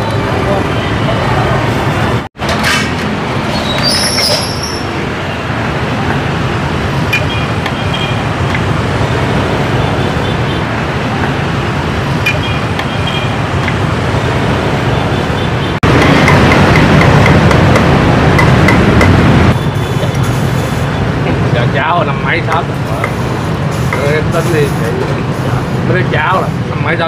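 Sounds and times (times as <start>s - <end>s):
street traffic noise: 0.0s - 27.0s
brief high squeal: 3.5s - 4.9s.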